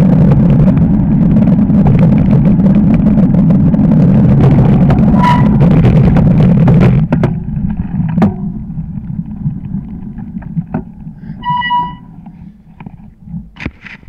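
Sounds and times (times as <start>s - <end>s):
bike tyre rumbling on snow: 0.0s - 14.0s
short squeal: 5.1s - 5.7s, 11.3s - 12.2s.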